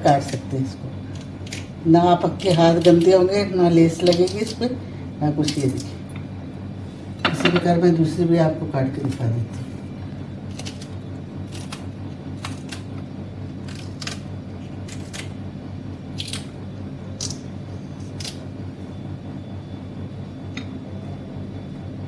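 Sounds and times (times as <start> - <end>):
steady low hum: 0.0 - 22.0
scissors snipping vegetables: 2.3 - 4.7, 10.5 - 13.0, 13.6 - 15.4, 16.1 - 16.5, 17.1 - 17.4, 18.0 - 18.4.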